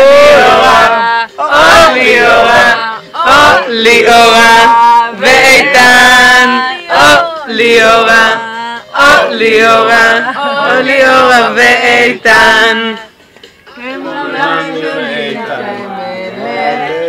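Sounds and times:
people singing loudly: 0:00.0 - 0:13.1, 0:13.8 - 0:17.0.

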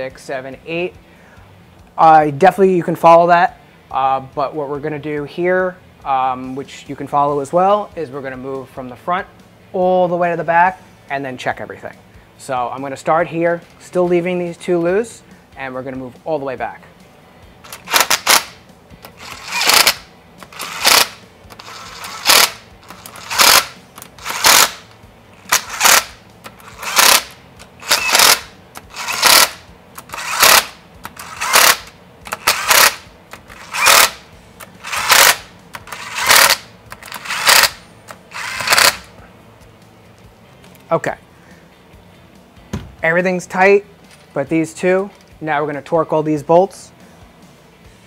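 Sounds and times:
power driver spinning in bursts: 0:17.6 - 0:39.2.

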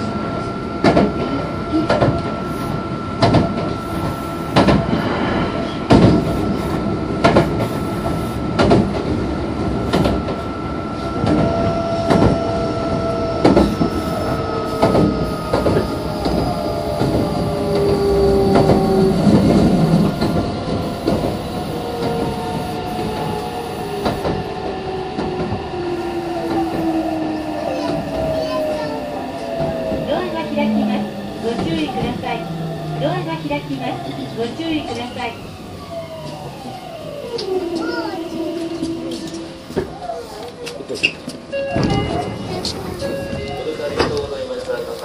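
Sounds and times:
train motor humming: 0:00.0 - 0:45.0
train wheels clicking over rail joints: 0:13.4 - 0:23.4.

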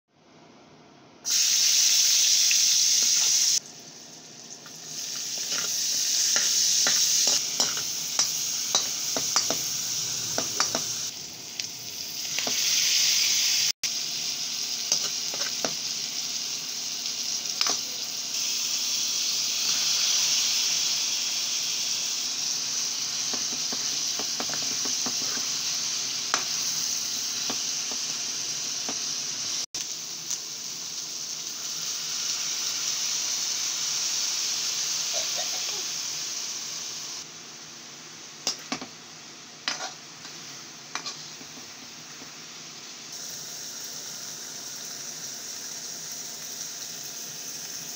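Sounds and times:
food sizzling in hot oil: 0:01.2 - 0:47.9
metal spatula scraping a pan: 0:39.6 - 0:41.3.

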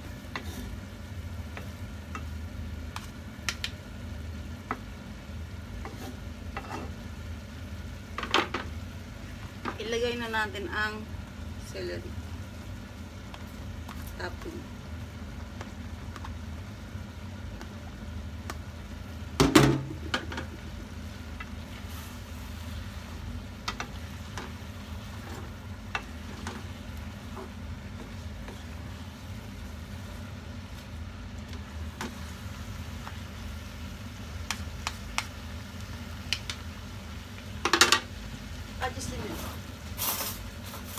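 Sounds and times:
steady low hum: 0:00.0 - 0:40.0
utensils tossing food in a pan: 0:21.2 - 0:33.6, 0:34.2 - 0:35.6.

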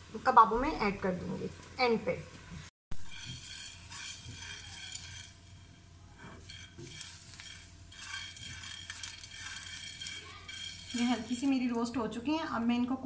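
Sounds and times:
spatula scraping a pan: 0:02.9 - 0:11.9
peppercorns ticking across a pan: 0:03.0 - 0:12.6.

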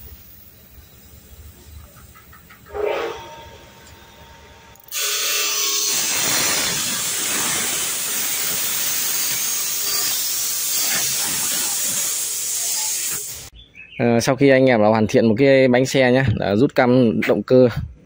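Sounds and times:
air hissing from tyre valve: 0:00.0 - 0:02.0, 0:04.9 - 0:13.5.

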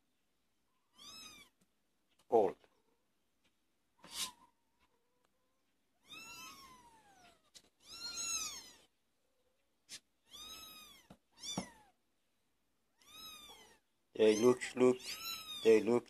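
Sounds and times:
kittens meowing: 0:00.9 - 0:01.6, 0:06.0 - 0:09.0, 0:09.9 - 0:12.0, 0:12.9 - 0:15.8.

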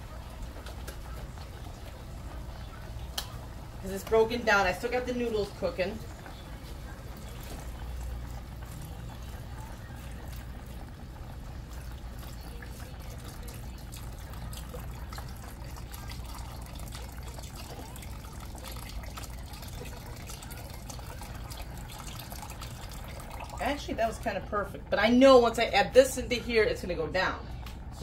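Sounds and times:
liquid pouring into pan: 0:07.2 - 0:23.9.

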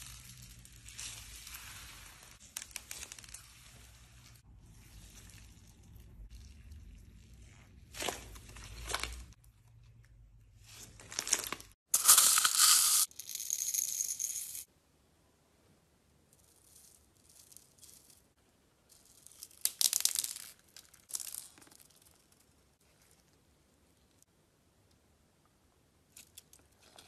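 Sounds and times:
plastic beads rattling onto slime: 0:11.1 - 0:14.7.

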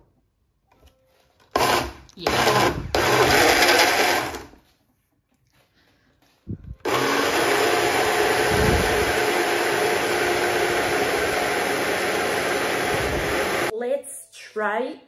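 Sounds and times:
blender running: 0:01.6 - 0:04.5, 0:06.8 - 0:13.7.

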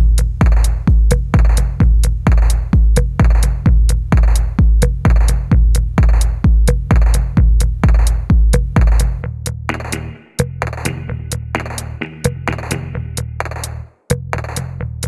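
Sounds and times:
heavy kick drum: 0:00.0 - 0:13.6
hi-hat ticks: 0:00.0 - 0:13.8
electronic music: 0:09.7 - 0:13.8.

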